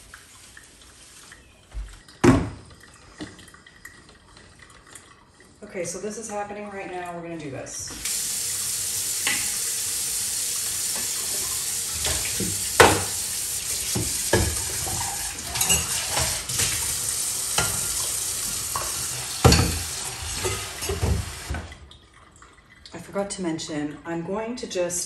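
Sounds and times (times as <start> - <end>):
faucet running into sink: 7.9 - 22.9
dishes clattering: 10.9 - 21.5.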